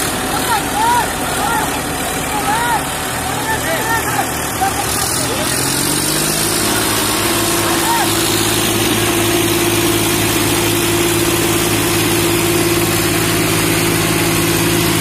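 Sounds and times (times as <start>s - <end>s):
tractor diesel engine idling: 0.0s - 15.0s.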